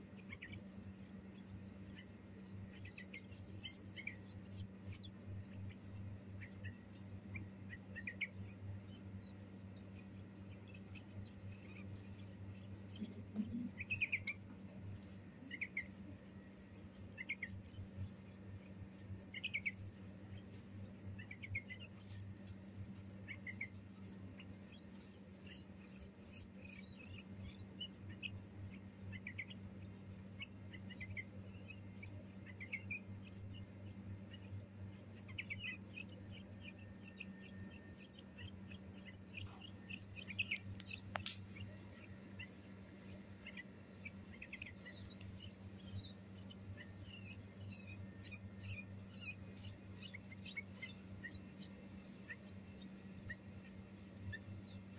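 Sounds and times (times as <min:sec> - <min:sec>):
chicks begging chirps: 0:00.0 - 0:54.9
low steady hum: 0:00.0 - 0:54.9.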